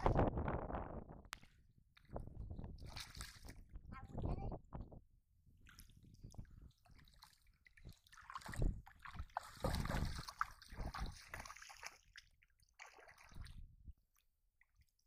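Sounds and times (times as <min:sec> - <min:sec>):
muddy water splashing: 0:02.0 - 0:03.7, 0:05.6 - 0:13.7.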